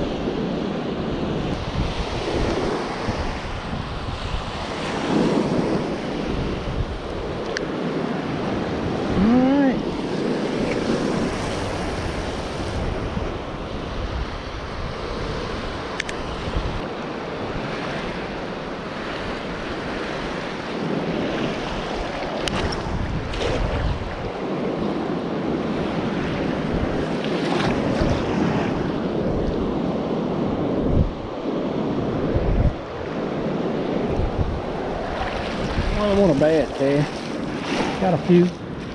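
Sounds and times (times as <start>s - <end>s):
wind buffeting microphone: 0.0s - 38.9s
surf breaking on beach: 7.6s - 38.9s.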